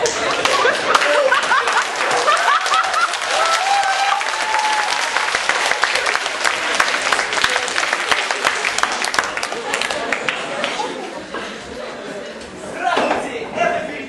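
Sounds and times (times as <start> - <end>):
audience applauding: 0.1 - 11.1.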